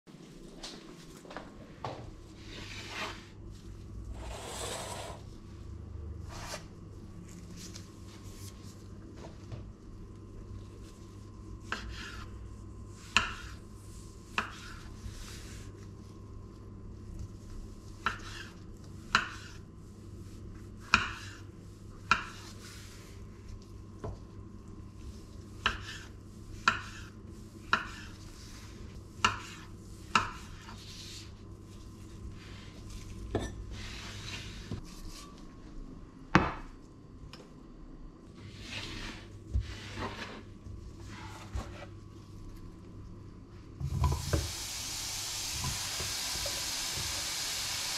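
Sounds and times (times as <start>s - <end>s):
knife scraping on board: 25.6s - 28.2s.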